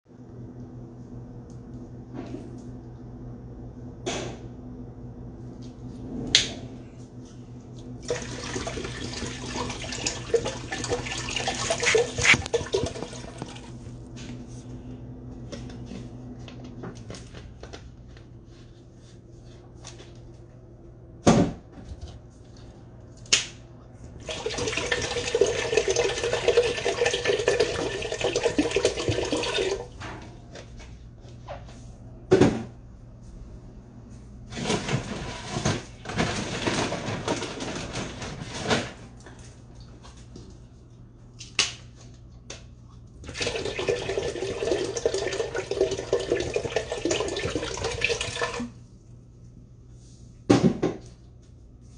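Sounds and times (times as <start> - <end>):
water pouring: 8.0 - 13.8, 24.2 - 29.9, 43.3 - 48.7.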